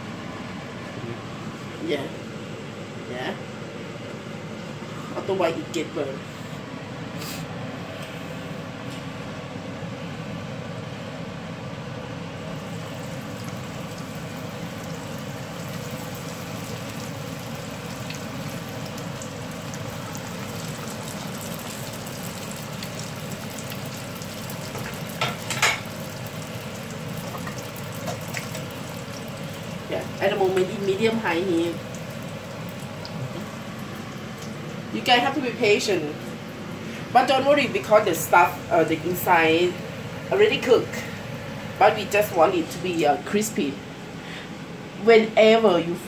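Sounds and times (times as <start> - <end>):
deep-frying sizzle in oil: 12.4 - 42.8.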